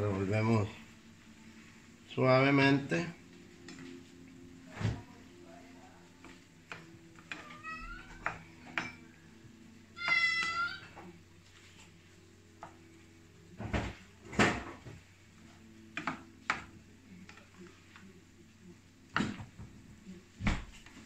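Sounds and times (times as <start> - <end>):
cat meowing: 7.3 - 8.4, 10.0 - 11.0.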